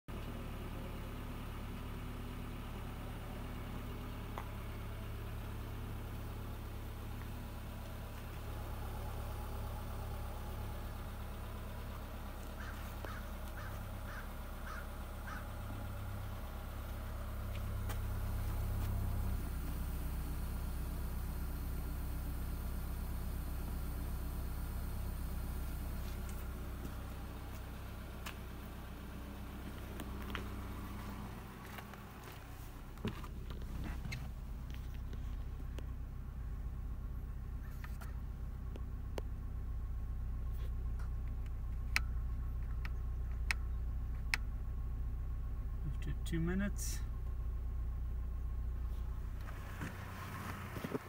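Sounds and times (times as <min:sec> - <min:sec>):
car engine idling: 0:00.0 - 0:51.0
bird calling: 0:12.1 - 0:15.9, 0:37.5 - 0:38.2.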